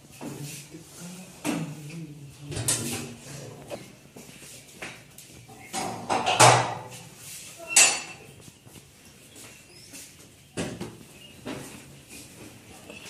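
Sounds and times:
metal gate scraping and clanking: 0:07.6 - 0:08.3.

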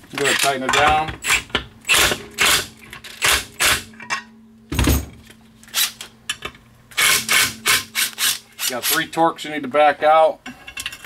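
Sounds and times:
impact driver hammering: 0:00.9 - 0:03.9, 0:07.0 - 0:08.4.

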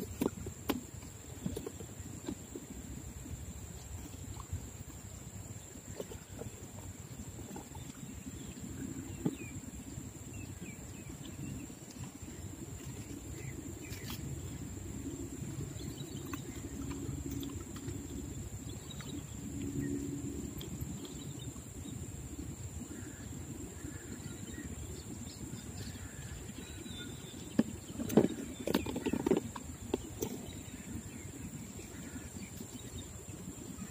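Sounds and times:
low rumbling: 0:12.3 - 0:33.6.

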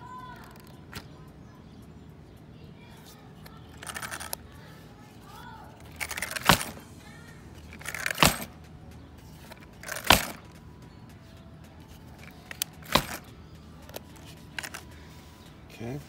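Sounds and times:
toy truck suspension clacking: 0:03.4 - 0:04.7, 0:05.8 - 0:08.7, 0:09.3 - 0:10.7, 0:11.8 - 0:15.0.

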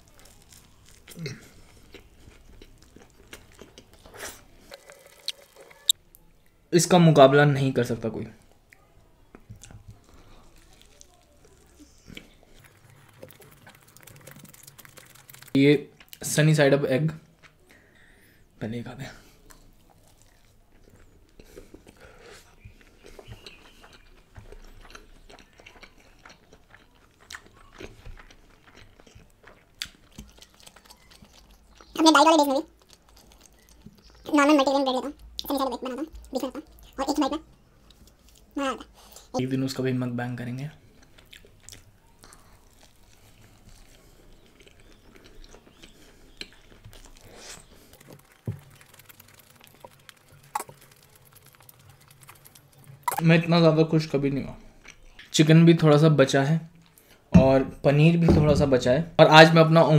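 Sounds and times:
wet chewing and lip smacks: 0:00.0 - 0:06.0, 0:08.7 - 0:16.2, 0:19.4 - 0:39.3, 0:40.8 - 0:53.2, 0:54.6 - 0:55.3, 0:56.7 - 0:57.3
sharp mouth clicks: 0:49.8 - 0:53.2
low thump: 0:58.3 - 0:58.7.

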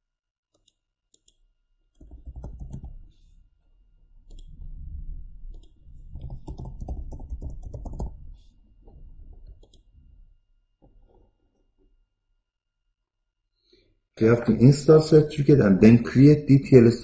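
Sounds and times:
keyboard typing: 0:02.0 - 0:03.2, 0:05.5 - 0:08.4, 0:09.4 - 0:09.9
mouse clicks: 0:04.3 - 0:04.5, 0:09.6 - 0:09.9.

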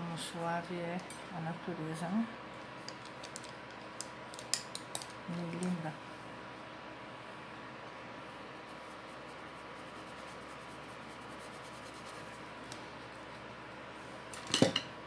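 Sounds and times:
paintbrush strokes on fabric: 0:08.5 - 0:12.5.

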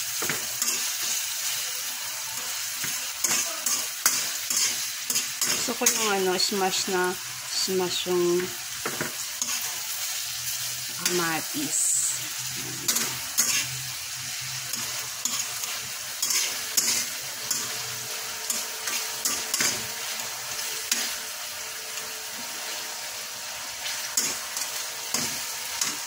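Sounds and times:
vegetables sizzling in oil: 0:00.0 - 0:26.0
spatula scraping and tapping pan: 0:02.8 - 0:06.1, 0:14.7 - 0:17.7.

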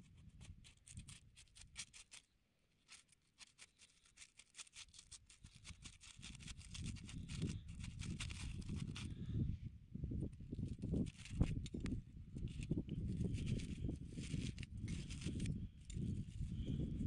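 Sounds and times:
foil crackling and tearing: 0:02.8 - 0:09.1
knife slitting foil: 0:03.0 - 0:08.9.

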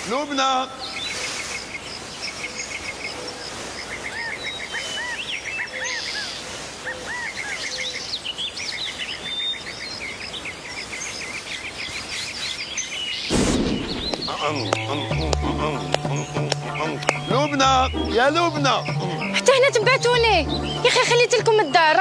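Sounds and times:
birds chirping and whistling: 0:00.0 - 0:22.0
outdoor hiss: 0:00.0 - 0:22.0
sudden loud noise burst: 0:13.3 - 0:14.6.

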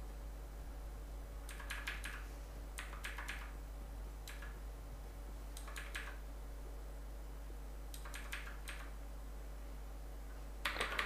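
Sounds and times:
faint steady hum: 0:00.0 - 0:11.0
keyboard keys clicking: 0:01.5 - 0:02.2, 0:02.8 - 0:03.5, 0:05.6 - 0:06.2, 0:08.0 - 0:08.9, 0:10.6 - 0:11.0.

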